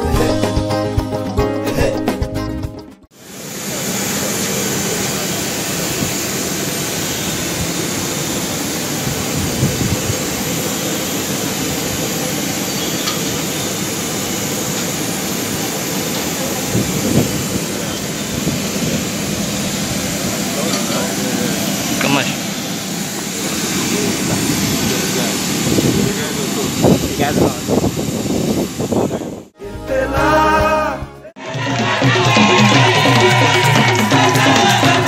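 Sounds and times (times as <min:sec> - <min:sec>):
jet airliner rushing noise: 0:03.2 - 0:29.5.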